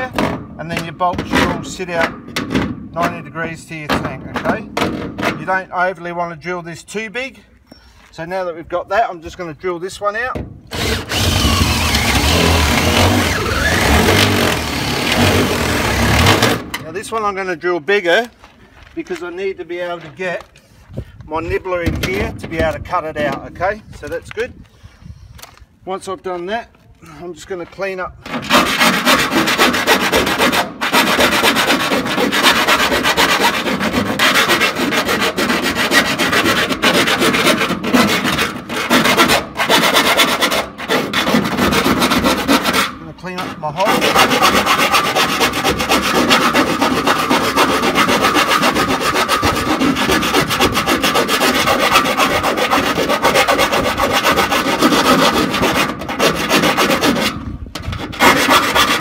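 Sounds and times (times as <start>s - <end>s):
tool rasping metal: 10.7s - 16.6s, 28.3s - 59.0s.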